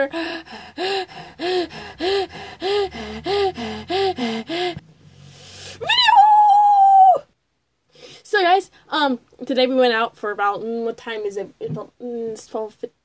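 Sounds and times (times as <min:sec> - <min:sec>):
girl making breathy vocal sounds: 0:00.0 - 0:04.8.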